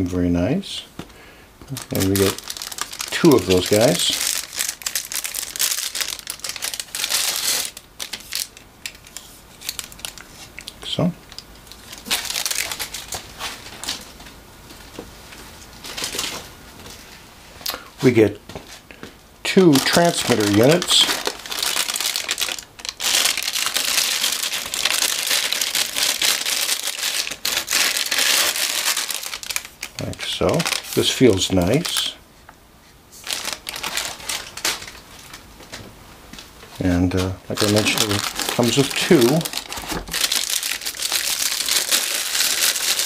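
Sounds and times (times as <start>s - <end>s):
plastic sleeve crinkling: 1.6s - 14.3s, 19.4s - 32.2s, 33.1s - 35.8s, 36.7s - 43.0s.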